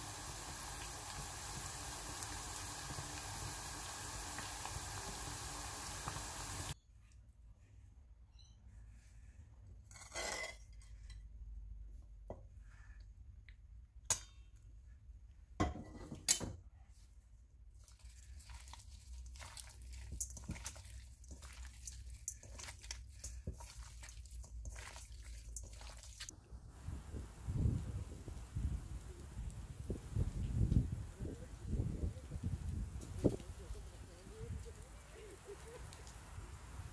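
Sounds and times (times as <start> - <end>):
wet squelching of mixing: 17.7 - 26.4.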